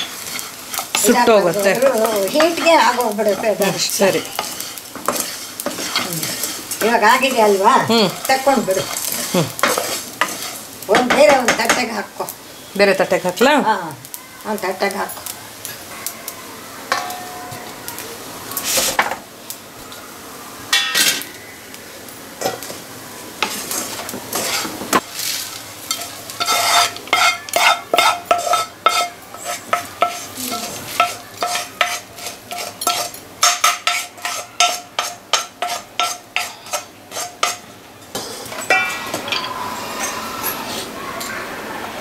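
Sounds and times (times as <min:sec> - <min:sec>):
seeds rattling onto steel plate: 0:00.0 - 0:11.9
spatula scraping and knocking pan: 0:00.0 - 0:12.0, 0:23.4 - 0:40.1.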